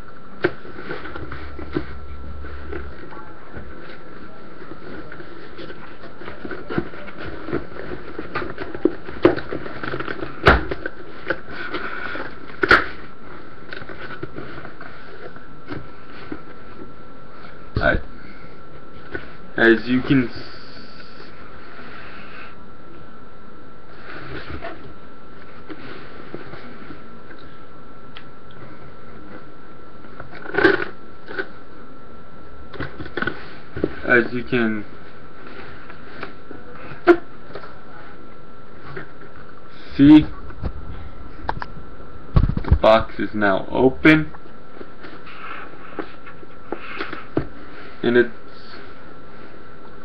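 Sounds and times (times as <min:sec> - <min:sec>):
faint high whine: 0:00.0 - 0:50.0
cardboard crackling and rustling: 0:00.4 - 0:16.9.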